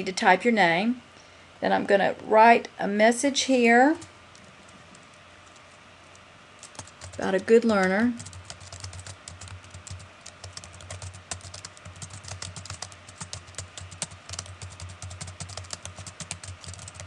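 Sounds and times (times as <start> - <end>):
faint low hum: 0.0 - 17.0
keyboard typing: 3.9 - 17.0.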